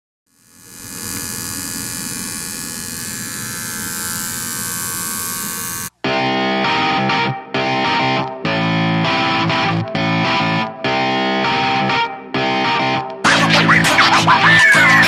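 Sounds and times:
tattoo machine buzzing: 0:00.3 - 0:06.0
distorted electric guitar music: 0:00.3 - 0:15.0.

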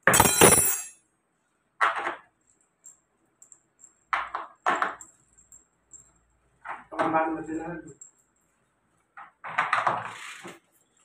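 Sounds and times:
metal clatter: 0:00.0 - 0:01.0.

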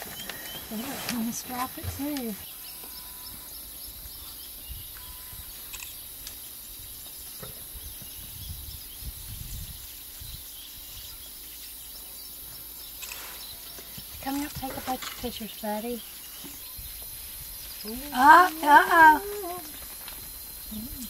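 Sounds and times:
faint bird chirps: 0:00.0 - 0:21.0.

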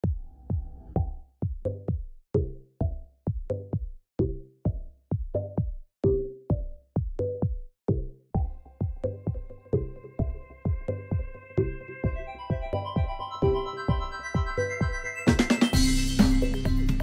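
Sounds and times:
drum machine beat: 0:00.0 - 0:17.0
electronic dance music: 0:08.4 - 0:17.0.

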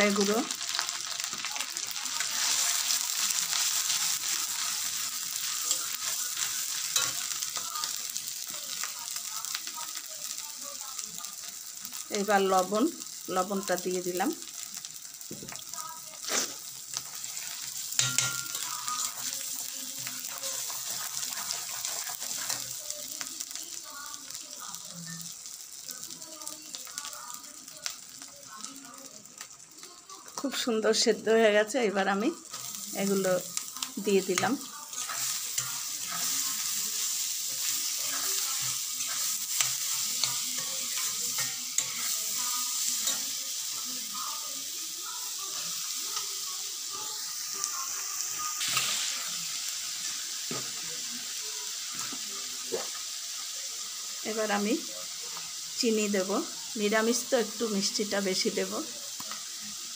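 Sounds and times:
sauce sizzling in a pan: 0:00.0 - 0:59.9
metal spatula scraping a pan: 0:00.7 - 0:08.0, 0:16.2 - 0:22.8, 0:32.5 - 0:44.7.

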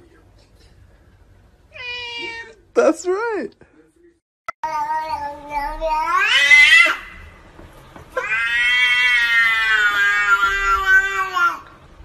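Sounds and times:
cat meowing: 0:01.7 - 0:02.6, 0:05.0 - 0:07.2, 0:08.2 - 0:11.7.

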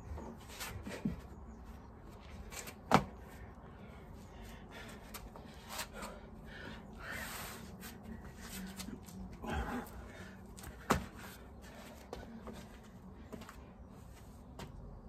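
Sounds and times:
man breathing hard: 0:03.5 - 0:08.6, 0:09.4 - 0:13.2.

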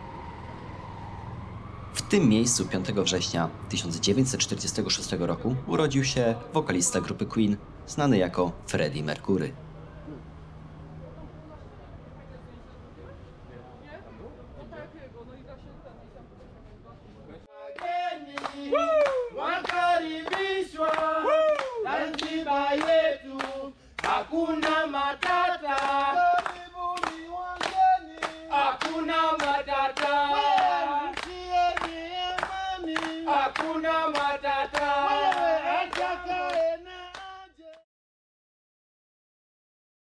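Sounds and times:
group singing without instruments: 0:17.5 - 0:37.8
hand claps: 0:17.8 - 0:37.8.

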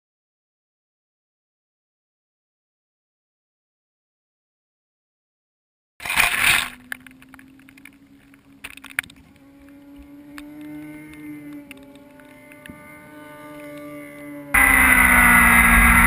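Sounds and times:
faint motorcycle engine drone: 0:06.0 - 0:16.0.

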